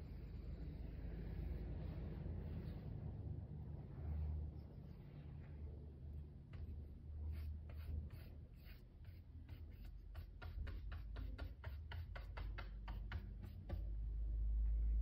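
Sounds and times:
paint brush scratching on wood: 6.5s - 13.8s
low rumble: 13.8s - 15.0s.

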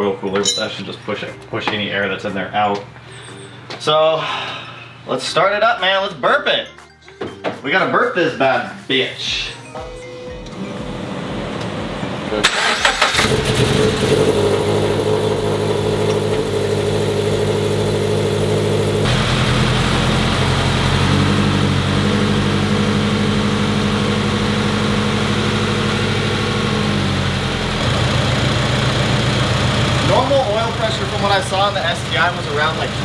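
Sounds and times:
car engine idling: 10.8s - 33.0s.

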